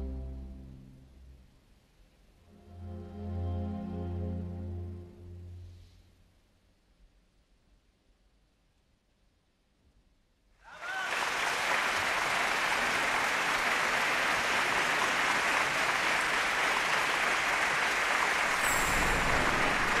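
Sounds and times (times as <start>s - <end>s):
audience applauding: 10.7s - 20.0s.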